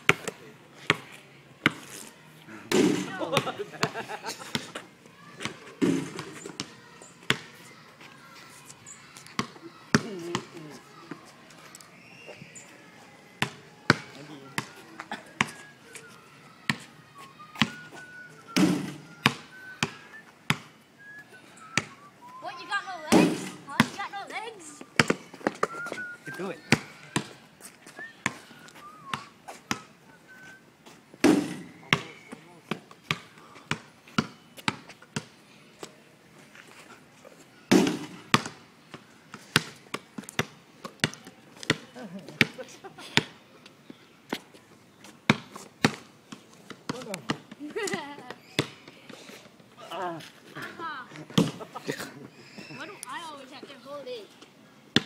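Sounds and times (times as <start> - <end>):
basketball bouncing on asphalt: 0.0 - 1.9, 2.7 - 4.8, 5.4 - 7.5, 9.4 - 10.7, 13.4 - 14.8, 18.6 - 20.7, 23.1 - 24.2, 25.0 - 25.7, 26.3 - 27.4, 31.2 - 36.0, 37.7 - 42.6, 45.3 - 49.1, 51.3 - 51.6.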